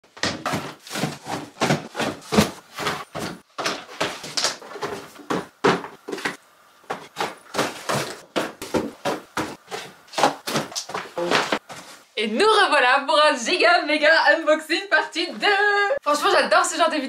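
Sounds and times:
cardboard boxes knocking and thumping: 0:00.1 - 0:12.0.

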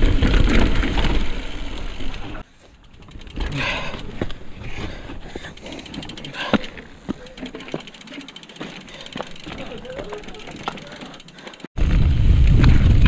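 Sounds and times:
bike rattling: 0:00.0 - 0:12.0
bike tyres rolling: 0:00.0 - 0:13.0
wind rumbling on microphone: 0:11.8 - 0:13.0.

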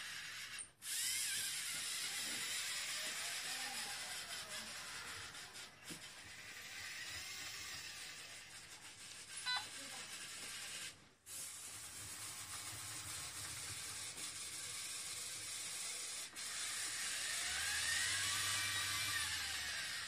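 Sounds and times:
robot motors whirring: 0:00.0 - 0:20.0
motor whine rising in pitch: 0:16.6 - 0:20.0.

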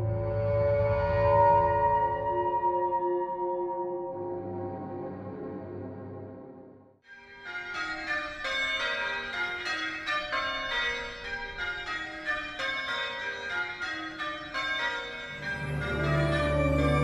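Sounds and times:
church bells ringing: 0:07.2 - 0:17.0.

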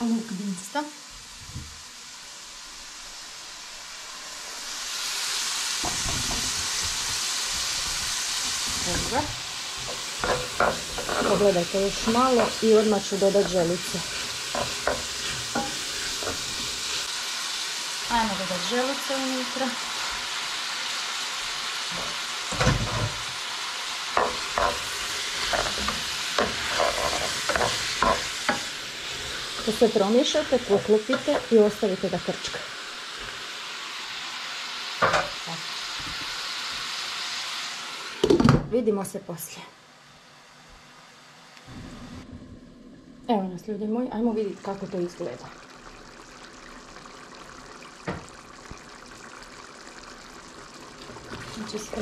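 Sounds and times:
onions sizzling in oil: 0:00.0 - 0:39.5, 0:43.8 - 0:52.0
wooden spoon scraping onions: 0:06.0 - 0:17.1, 0:24.2 - 0:31.6.

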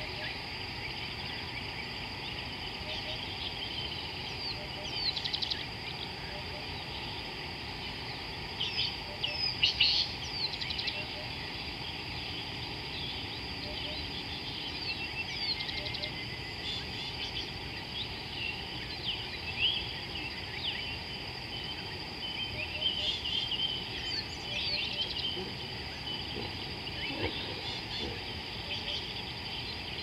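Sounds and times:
birds calling and chirping: 0:00.0 - 0:30.0.

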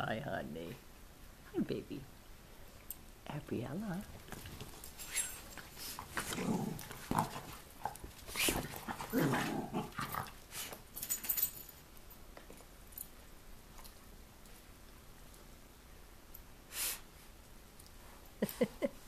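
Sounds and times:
dogs growling and scuffling: 0:04.0 - 0:11.8.

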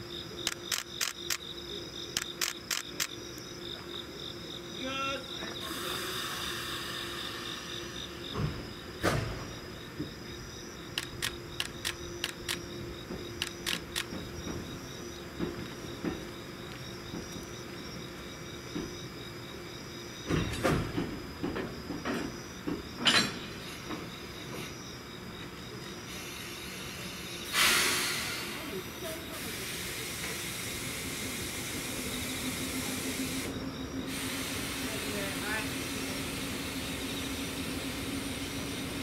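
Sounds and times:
crickets chirping: 0:00.0 - 0:39.0
train wheels clicking over rail joints: 0:10.9 - 0:17.6, 0:20.2 - 0:24.7.

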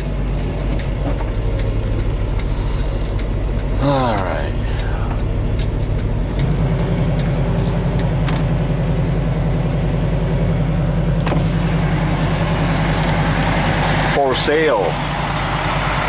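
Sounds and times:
diesel truck engine drone: 0:00.0 - 0:16.0.

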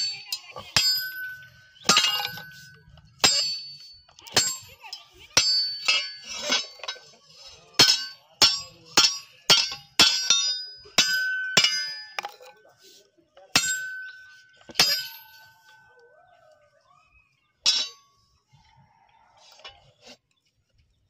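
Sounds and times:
hammer striking metal on anvil: 0:00.8 - 0:02.5, 0:03.2 - 0:04.7, 0:05.4 - 0:07.0, 0:07.8 - 0:12.4, 0:13.5 - 0:15.3, 0:17.7 - 0:18.0.

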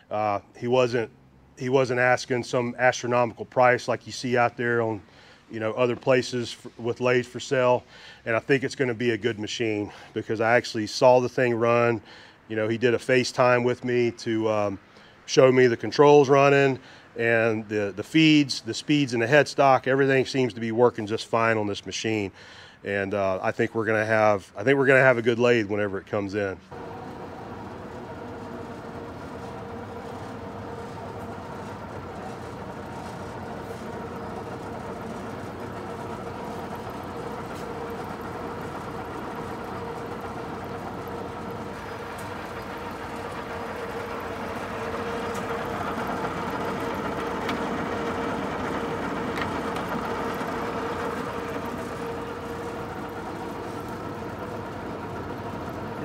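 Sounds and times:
lathe gearing humming and whining: 0:26.7 - 0:56.0.

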